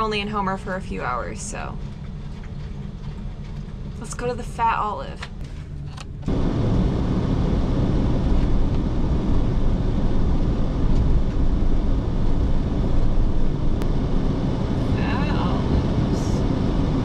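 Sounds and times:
van driving on snowy road: 6.3 - 17.0.

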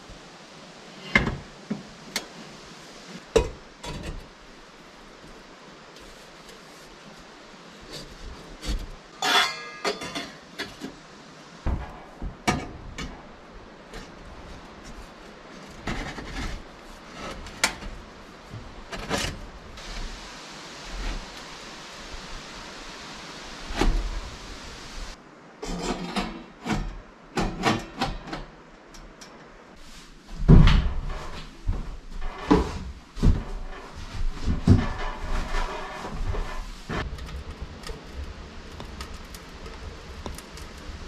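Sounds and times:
steady hiss: 0.0 - 27.5, 28.3 - 41.0
metal pipe knocking and scraping: 8.6 - 10.9.

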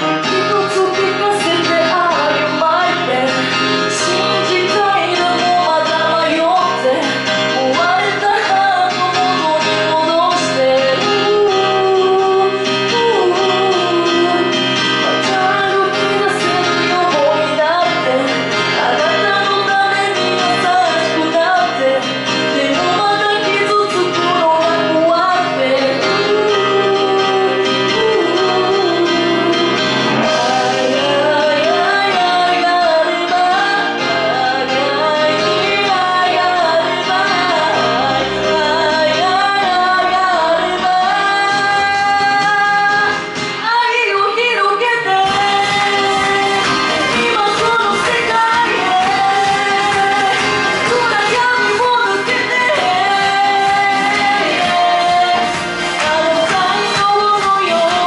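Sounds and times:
instrumental backing music: 0.0 - 58.0
woman singing into microphone: 0.0 - 58.0.

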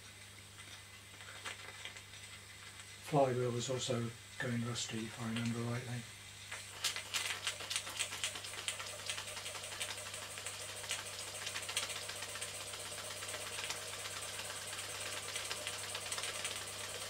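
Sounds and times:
toy steam engine clicking: 6.8 - 16.8.

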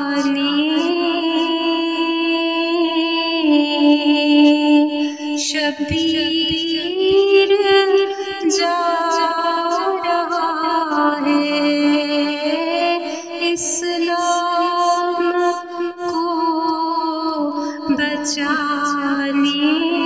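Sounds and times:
person singing devotional song: 0.0 - 20.0.

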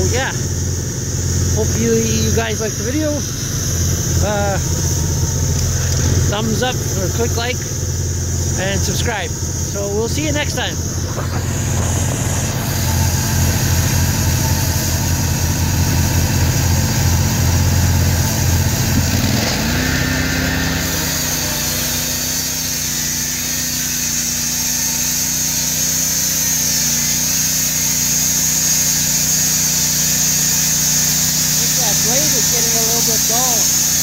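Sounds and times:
sawmill gas engine running: 0.0 - 34.0
band blade sawing log: 8.4 - 34.0.

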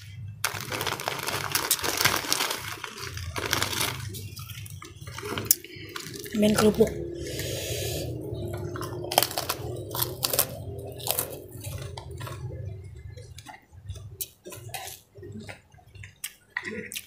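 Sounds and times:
cracker crunches: 0.4 - 6.8, 8.7 - 12.5
wet chewing: 0.6 - 17.0.

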